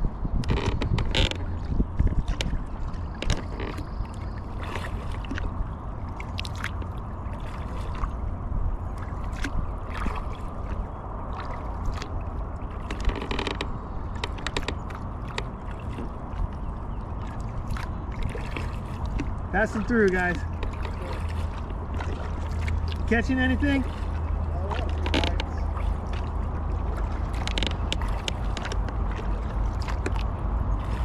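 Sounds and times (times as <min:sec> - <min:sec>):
steady low rumble: 0:00.0 - 0:31.0
kayak paddle dipping and dripping: 0:00.5 - 0:31.0
light clicks and knocks: 0:12.8 - 0:16.1, 0:20.1 - 0:21.4, 0:24.7 - 0:26.2.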